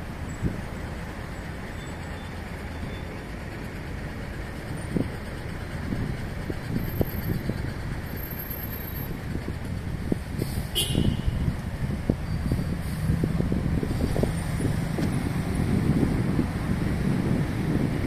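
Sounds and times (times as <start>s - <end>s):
city traffic rumble: 0.0s - 18.0s.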